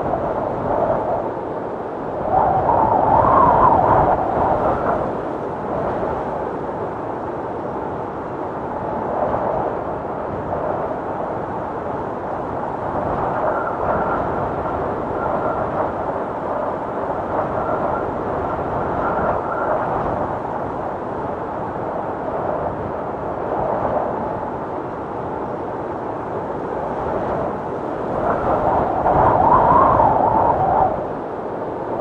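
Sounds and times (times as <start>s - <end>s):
strong wind roaring: 0.0s - 32.0s
faint wind whistle: 2.0s - 6.1s, 12.8s - 21.0s, 26.2s - 32.0s.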